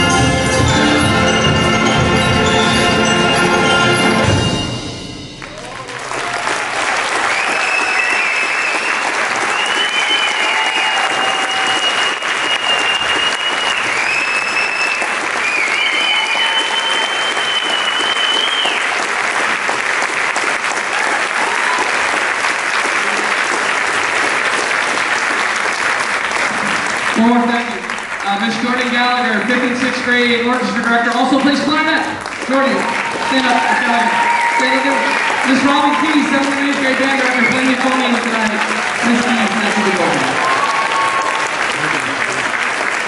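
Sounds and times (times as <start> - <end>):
audience applauding: 0.0 - 43.0
high whistles: 7.2 - 19.0.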